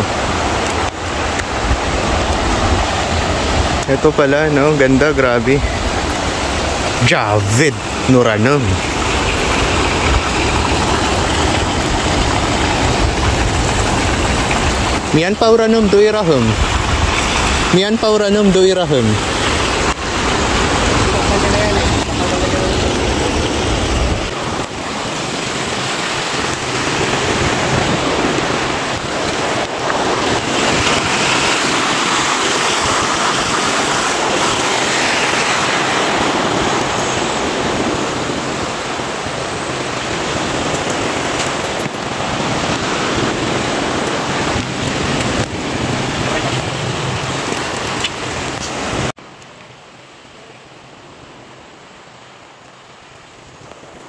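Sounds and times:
wind rushing: 0.0 - 40.7
sea surf: 0.0 - 54.0.

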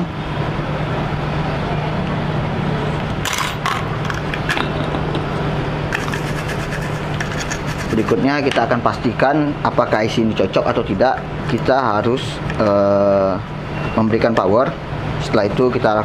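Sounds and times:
light scrapes and taps: 6.0 - 8.6.

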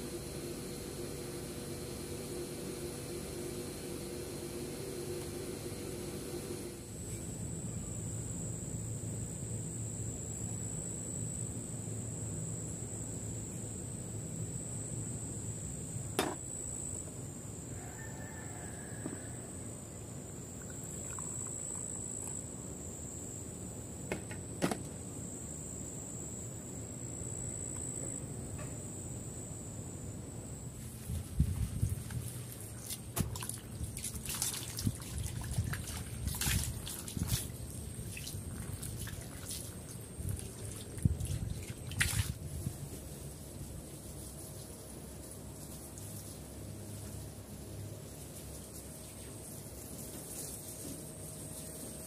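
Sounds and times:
high-pitched insect drone: 0.0 - 32.0.

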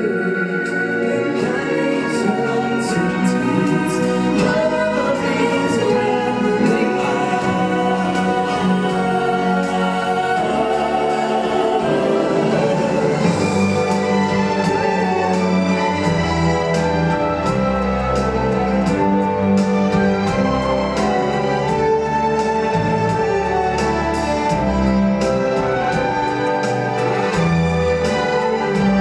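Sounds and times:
chorus singing: 0.0 - 29.0
orchestral backing music: 0.0 - 29.0.

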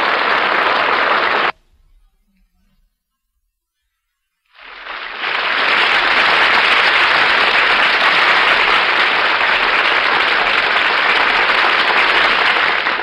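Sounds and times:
audience applauding: 0.0 - 1.6, 4.6 - 13.0.

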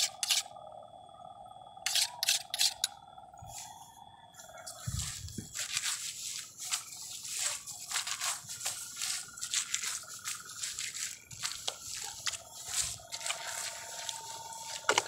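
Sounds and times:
roots tearing in wet mud: 6.6 - 15.0.

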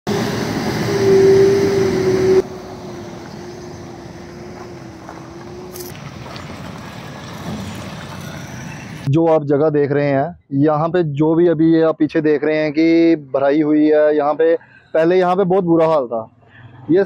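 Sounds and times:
vehicles driving on gravel: 0.1 - 9.1.

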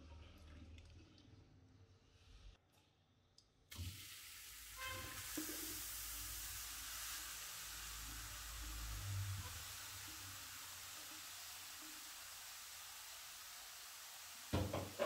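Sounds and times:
carrots sizzling in a wok: 3.8 - 15.0.

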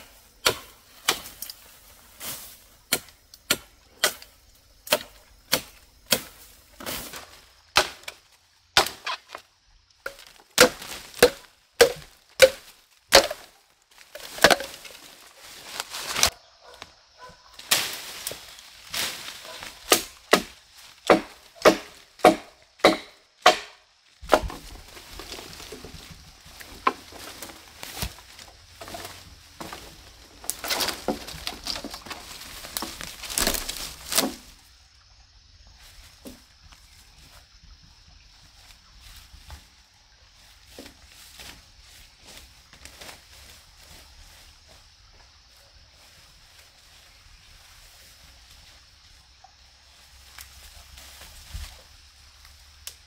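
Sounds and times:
machete chopping bamboo: 0.4 - 1.6, 2.9 - 7.0, 7.7 - 8.2, 8.8 - 9.4, 10.0 - 13.5, 14.1 - 15.0, 19.0 - 24.7, 32.7 - 34.4.

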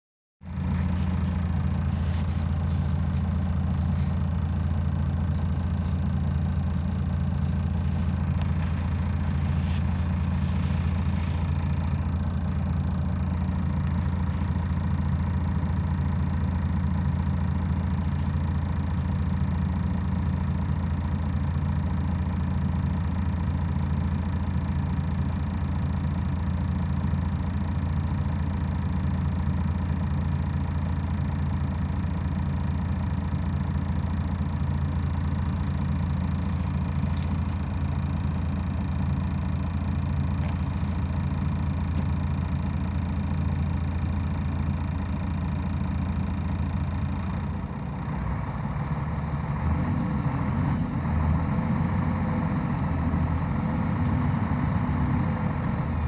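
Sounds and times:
diesel bus engine idling: 0.4 - 56.0.

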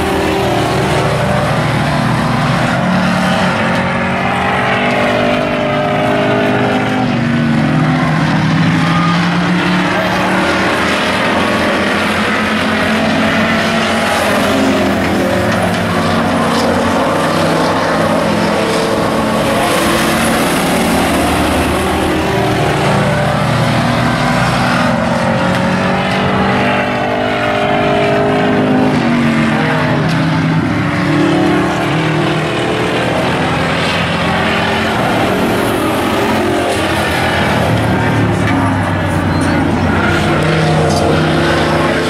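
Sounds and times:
race truck engines roaring: 0.0 - 42.0.

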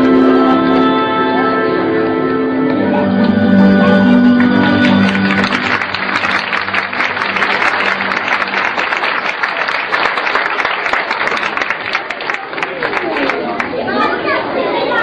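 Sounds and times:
dance music held note: 3.0 - 9.3
audience applauding: 4.1 - 13.9.

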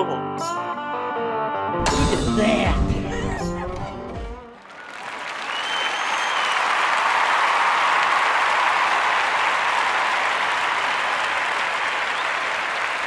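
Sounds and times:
crowd applauding: 4.5 - 13.0
faint whistles: 5.4 - 6.7.

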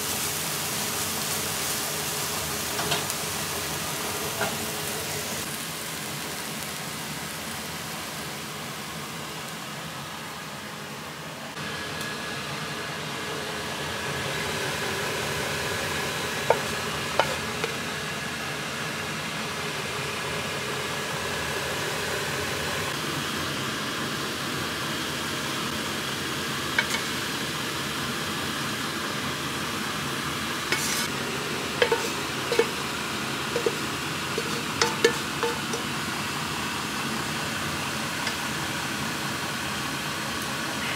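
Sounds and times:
food sizzling in a pan: 0.0 - 10.2, 11.6 - 24.2, 24.8 - 40.9
spatula knocking on pan: 34.4 - 35.8.

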